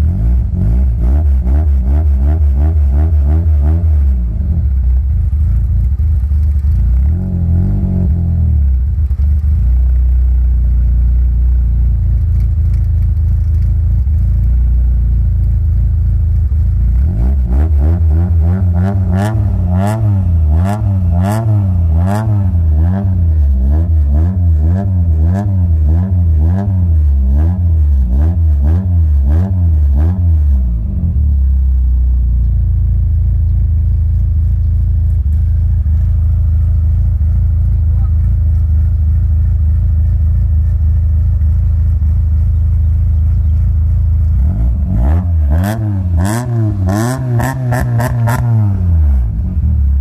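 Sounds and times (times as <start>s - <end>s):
car engine revving: 0.0s - 50.0s
engine idling: 3.6s - 25.9s, 30.4s - 50.0s
exhaust snaps: 11.8s - 50.0s.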